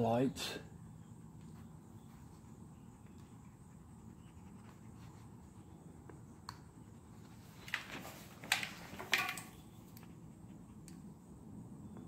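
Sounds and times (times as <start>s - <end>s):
handling rustling and knocking: 7.6s - 9.8s.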